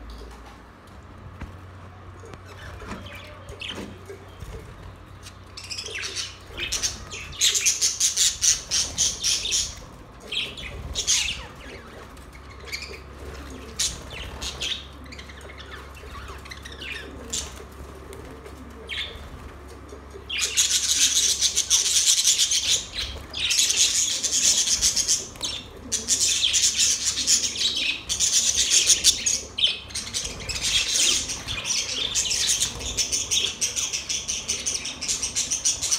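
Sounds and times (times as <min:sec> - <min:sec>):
budgerigars chirping and warbling: 0:05.3 - 0:17.6, 0:20.2 - 0:35.9
wings flapping: 0:06.4 - 0:14.9, 0:17.1 - 0:33.9.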